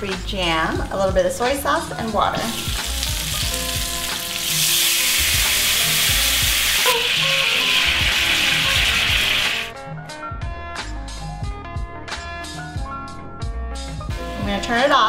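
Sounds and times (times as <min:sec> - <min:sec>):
soft background music with beat: 0:00.0 - 0:15.0
sauce sizzling in hot skillet: 0:02.4 - 0:09.7.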